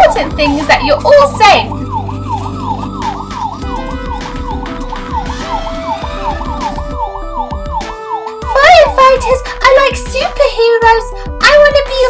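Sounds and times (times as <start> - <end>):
toy electronic siren wailing: 0.0 - 9.2.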